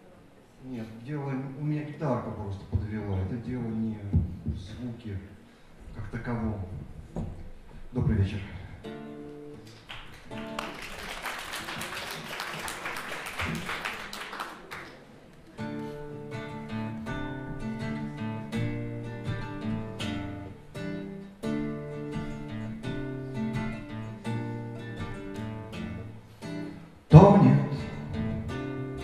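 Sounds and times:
acoustic guitar playing: 0:08.8 - 0:10.8, 0:15.4 - 0:29.0.

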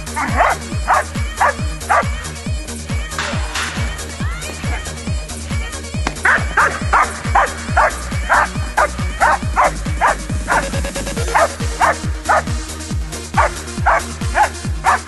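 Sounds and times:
dog barking rapidly: 0:00.0 - 0:02.3, 0:06.1 - 0:12.6, 0:13.3 - 0:15.0
electronic music with kick drum: 0:00.0 - 0:15.0.

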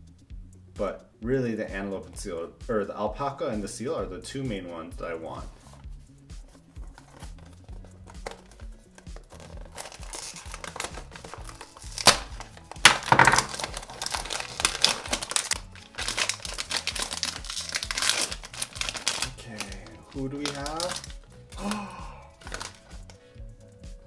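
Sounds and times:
foil bag crinkling and tearing: 0:06.8 - 0:23.2
cardboard carton tearing: 0:06.9 - 0:21.1, 0:22.4 - 0:23.0.

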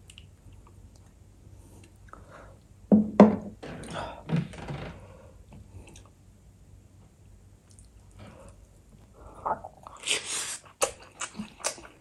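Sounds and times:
mouth and eating noises: 0:09.3 - 0:12.0.

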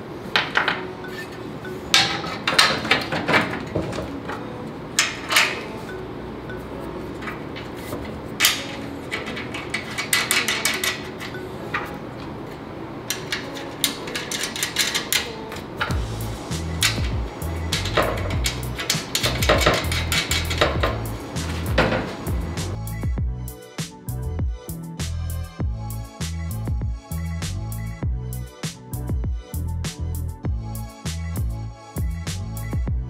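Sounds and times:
metal parts knocking and clinking: 0:01.9 - 0:04.2, 0:07.2 - 0:11.9, 0:13.1 - 0:16.0, 0:16.8 - 0:22.2.

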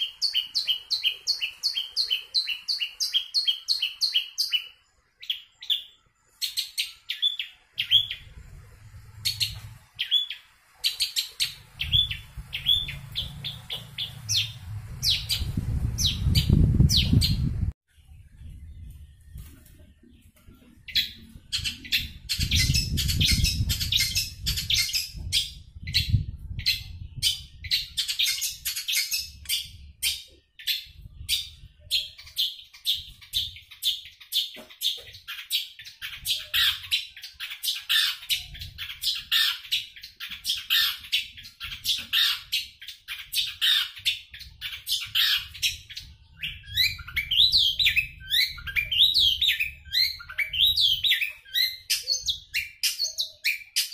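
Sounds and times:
bird singing chattering notes: 0:09.2 - 0:17.6, 0:20.0 - 0:53.9.

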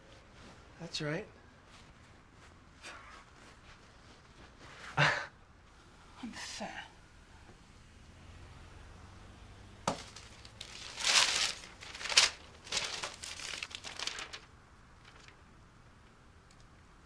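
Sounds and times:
newspaper rustling and crackling: 0:09.8 - 0:16.1.

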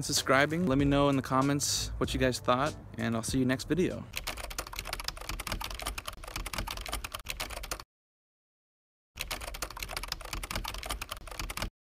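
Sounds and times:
keyboard typing clicks: 0:04.2 - 0:07.8, 0:09.2 - 0:11.7.

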